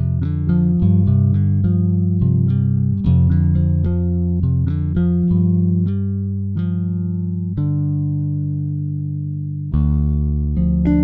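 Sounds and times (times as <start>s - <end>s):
melody notes: 9.7s - 11.0s.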